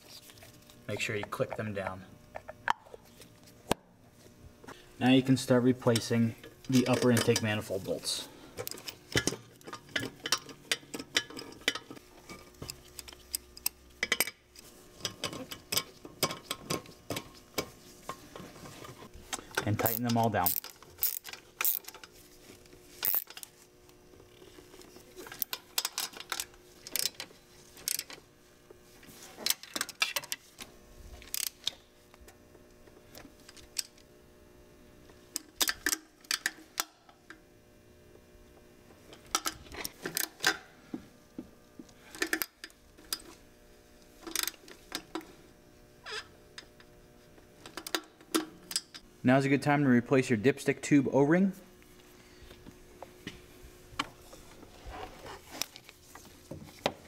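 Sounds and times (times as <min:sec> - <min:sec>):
wrench metallic clicks: 0:19.6 - 0:22.0, 0:23.0 - 0:23.4.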